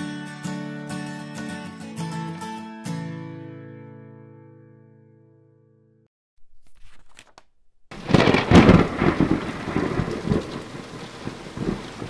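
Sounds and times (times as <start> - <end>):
thunder crack and rumble: 7.9 - 12.0
rain hiss: 8.0 - 12.0.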